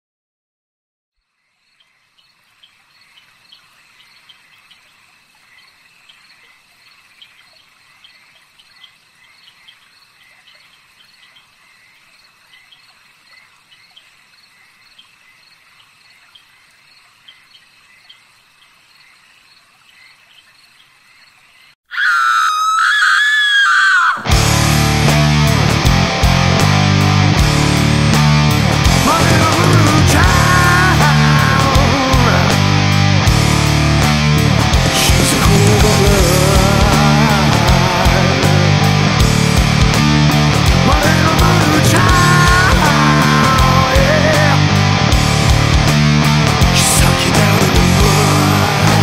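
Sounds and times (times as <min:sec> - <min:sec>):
frogs and insects chorus: 0:01.2 - 0:24.2
loud high wavering cry: 0:21.9 - 0:24.3
heavy metal music: 0:24.2 - 0:49.0.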